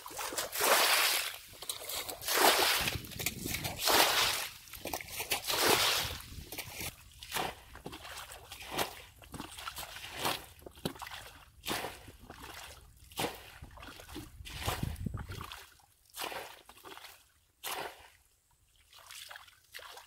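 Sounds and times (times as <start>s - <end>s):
muddy water splashing: 0.0s - 20.0s.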